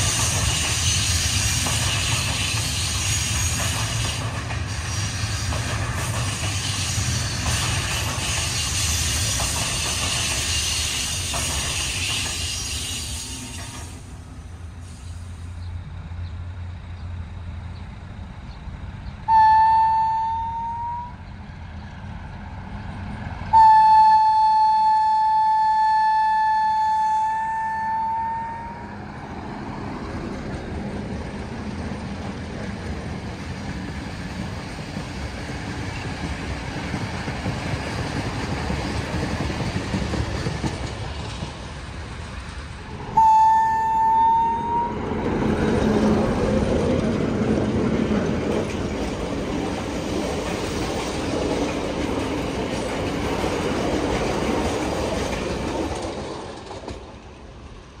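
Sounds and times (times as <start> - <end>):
train rumble and clatter: 0.0 - 58.0
locomotive horn blast: 19.3 - 21.2, 23.5 - 29.1, 43.1 - 45.2.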